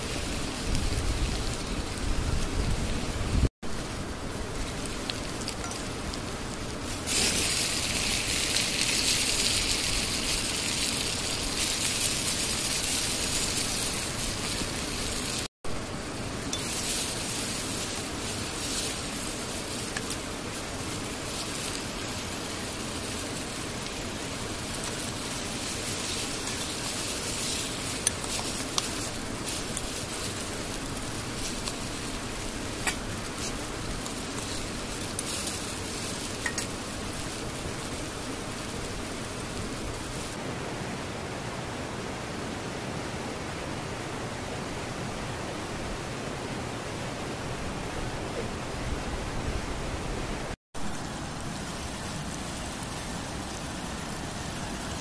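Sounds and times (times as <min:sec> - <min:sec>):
food sizzling in a pan: 0:00.0 - 0:40.4
wood fire crackling: 0:00.0 - 0:40.4, 0:50.8 - 0:55.0.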